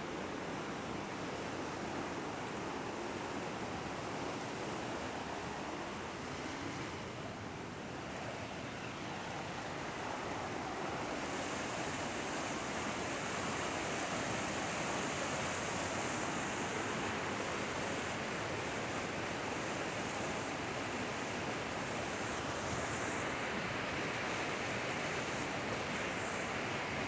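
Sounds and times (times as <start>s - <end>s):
creek rushing over rocks: 9.0s - 27.0s.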